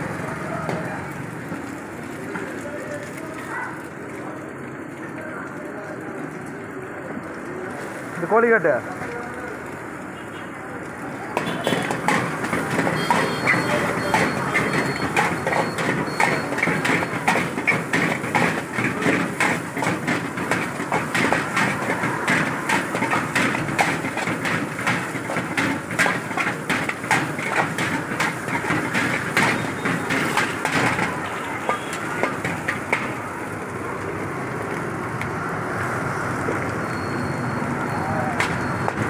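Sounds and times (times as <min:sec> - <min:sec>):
gas burner and frying hiss: 0:00.0 - 0:39.0
ladle scraping iron wok: 0:11.5 - 0:33.5.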